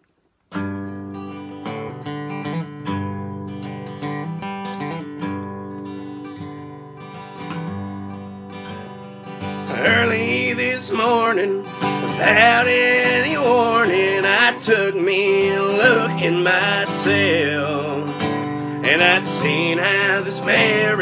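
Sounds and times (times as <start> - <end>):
strummed acoustic guitar: 0.5 - 21.0
man singing: 9.7 - 21.0.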